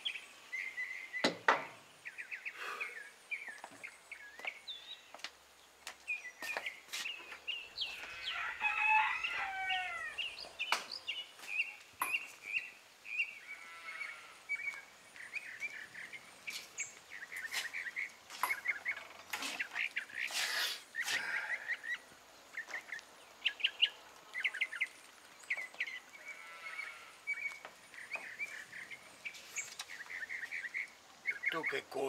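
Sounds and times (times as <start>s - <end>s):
small birds chirping: 0.0s - 32.0s
rooster crowing: 8.0s - 10.3s.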